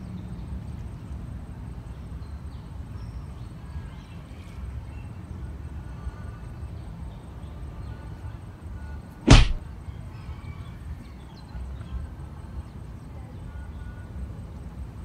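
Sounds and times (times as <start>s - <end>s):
fishing rod swish: 9.3s - 9.6s.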